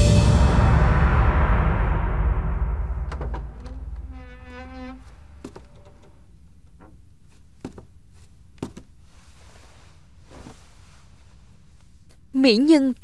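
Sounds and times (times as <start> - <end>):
sharp isolated knocks: 0.5 - 6.2.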